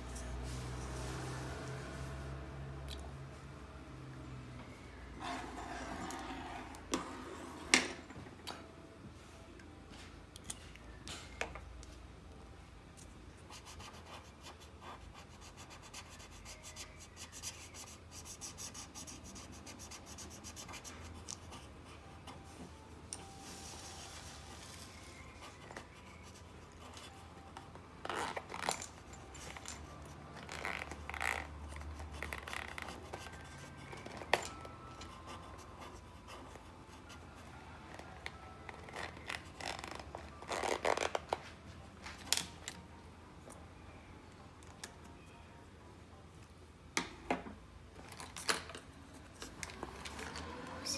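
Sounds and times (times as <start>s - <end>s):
pencil and marker scratching paper: 5.2s - 7.7s, 13.5s - 22.5s, 23.3s - 27.6s, 29.4s - 34.2s, 35.0s - 37.7s.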